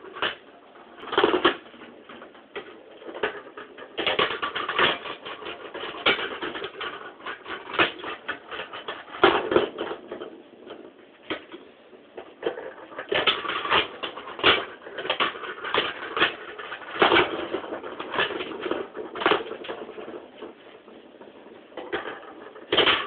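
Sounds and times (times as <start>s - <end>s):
plastic balls clattering down ramps: 0.0s - 23.0s.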